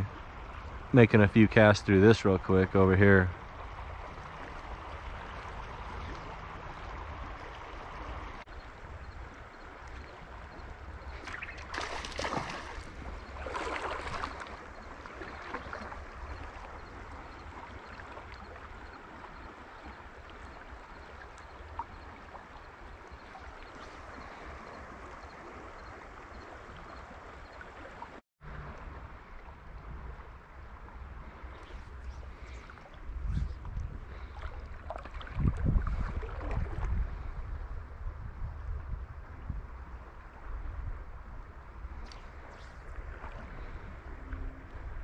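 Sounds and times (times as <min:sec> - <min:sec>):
river water rushing: 0:11.3 - 0:19.3
low wind rumble on microphone: 0:28.4 - 0:45.0.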